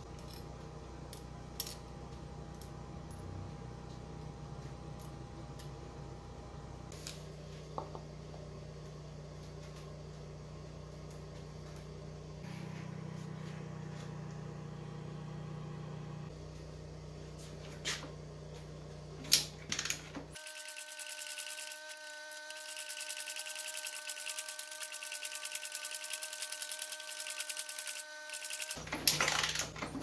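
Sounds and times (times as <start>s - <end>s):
steady low hum: 0.0s - 28.3s
held tones: 20.4s - 28.8s.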